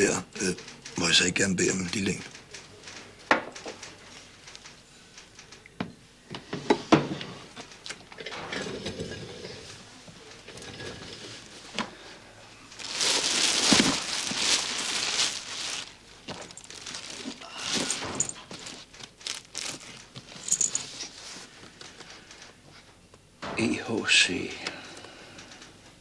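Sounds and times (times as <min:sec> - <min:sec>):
plastic bag crinkling: 0:12.6 - 0:21.4.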